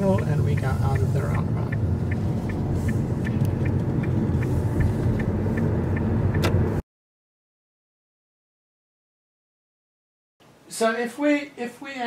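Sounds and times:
low rumble of engine and tyres: 0.0 - 6.8
turn signal ticking: 0.0 - 6.8
sharp click: 6.3 - 6.7.

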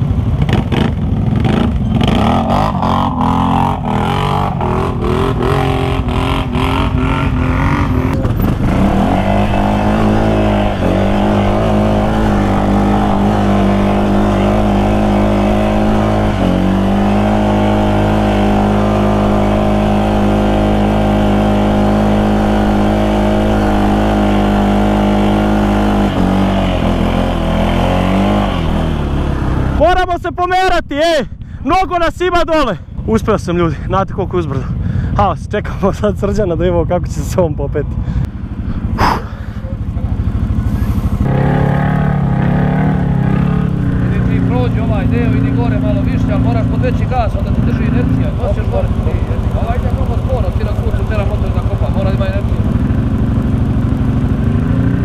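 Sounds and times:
off-road engine at high revs: 0.0 - 30.2, 33.0 - 55.0.

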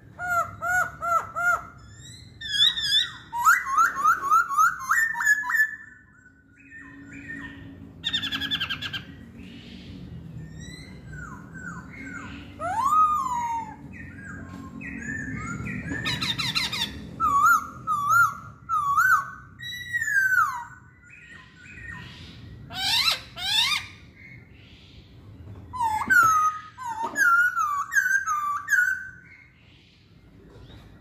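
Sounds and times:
bird singing whistled notes: 0.2 - 25.0, 25.7 - 29.8.

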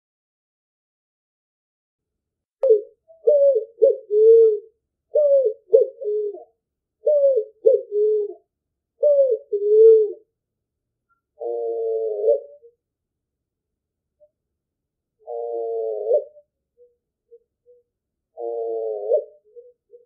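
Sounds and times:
pigeon cooing: 2.6 - 10.3, 11.4 - 12.8, 15.2 - 20.0.

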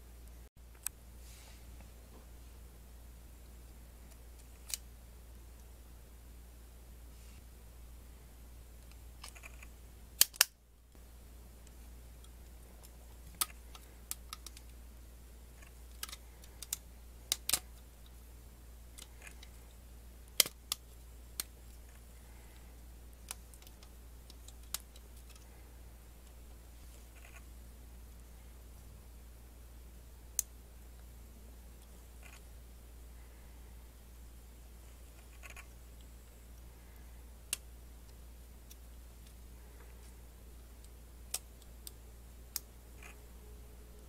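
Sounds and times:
faint steady hum: 0.0 - 44.0
plastic parts clicking together: 4.1 - 4.8, 8.8 - 10.6, 12.2 - 14.8, 15.6 - 18.2, 20.3 - 22.0, 23.2 - 25.5.

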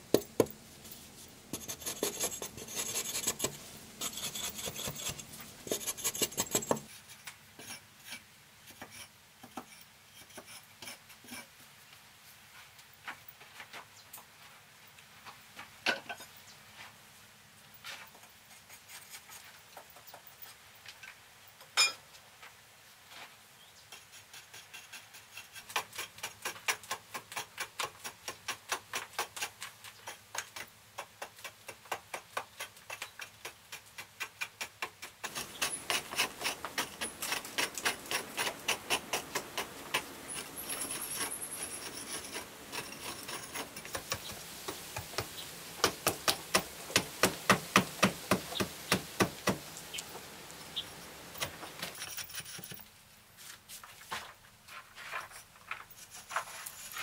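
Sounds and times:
hand hoe chopping earth: 24.5 - 49.7.

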